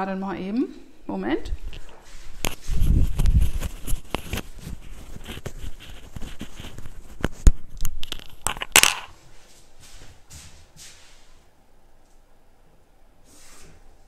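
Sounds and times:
rustling: 1.7 - 11.4.

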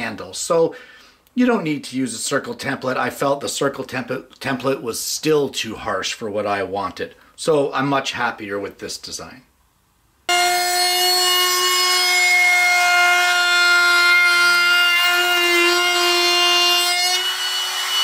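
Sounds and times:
router high whine: 10.3 - 18.0.

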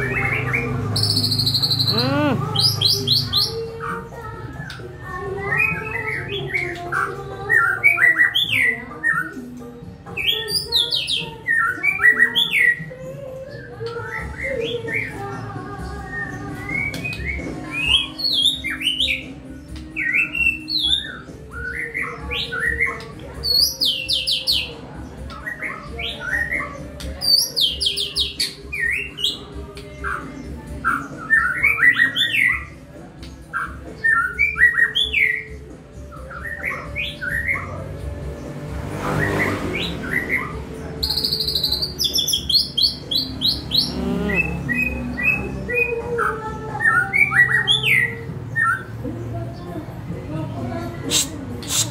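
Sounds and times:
bird singing whistled song: 0.0 - 3.6, 16.0 - 37.8, 39.2 - 49.0.

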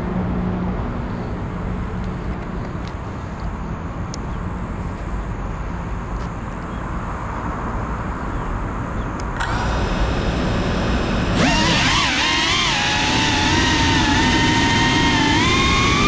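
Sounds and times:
distant traffic: 0.0 - 16.0
drone motors whining: 9.4 - 16.0.

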